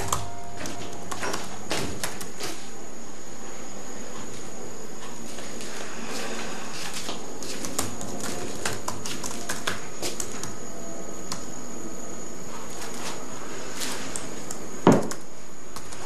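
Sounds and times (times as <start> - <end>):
laptop keyboard typing: 0.0 - 2.6, 7.4 - 10.6, 13.8 - 16.0.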